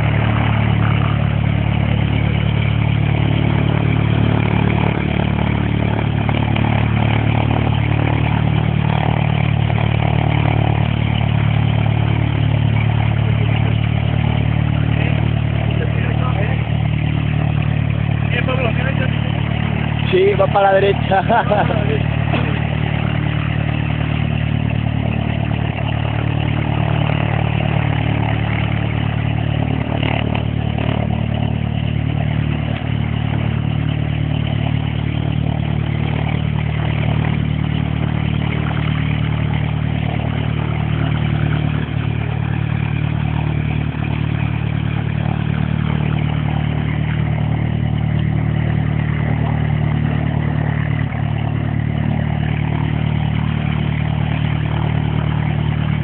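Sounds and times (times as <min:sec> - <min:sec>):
light aircraft engine and propeller: 0:00.0 - 0:56.0.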